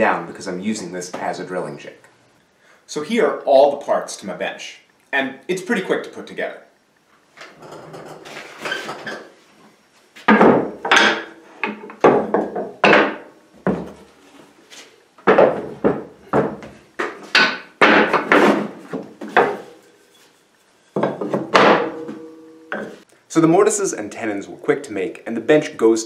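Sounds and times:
wooden knocks: 10.3s - 14.0s, 15.2s - 19.7s.

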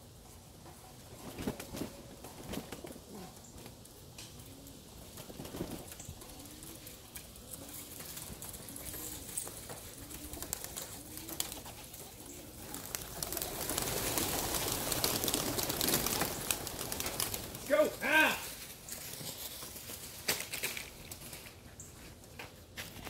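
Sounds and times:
pigeons cooing: 0.8s - 18.0s
pigeon wings clattering: 1.0s - 21.6s.

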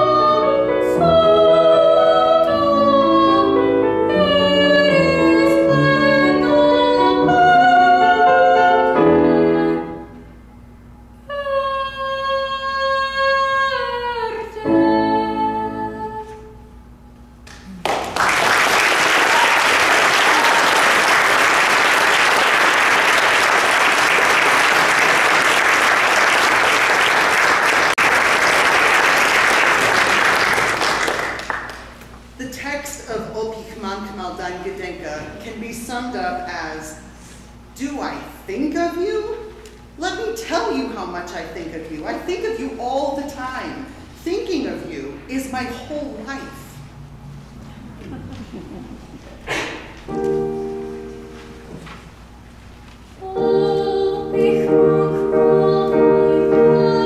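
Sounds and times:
woman singing classical song: 0.0s - 10.2s, 11.2s - 16.7s, 53.2s - 57.0s
piano accompaniment: 0.0s - 10.4s, 49.8s - 57.0s
audience applause: 17.7s - 31.9s.

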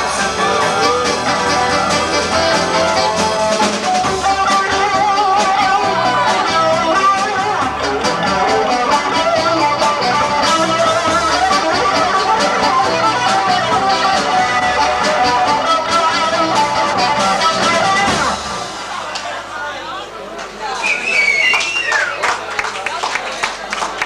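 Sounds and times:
live rock band playing: 0.0s - 19.0s.

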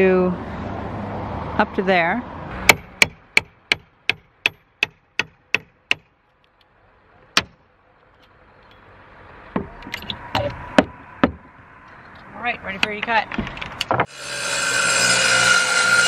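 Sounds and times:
hammer striking chisel into wood: 2.7s - 6.1s, 10.4s - 11.4s
irregular knocks: 9.5s - 11.5s.

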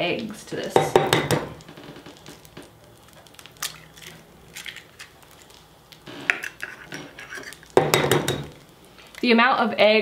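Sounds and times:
eggshell crunching: 1.6s - 7.8s.

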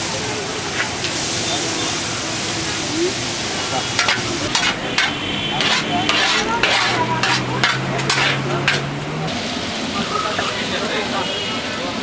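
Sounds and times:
carrots sizzling in hot oil: 0.0s - 11.5s
metal spatula scraping pot: 4.0s - 9.0s.

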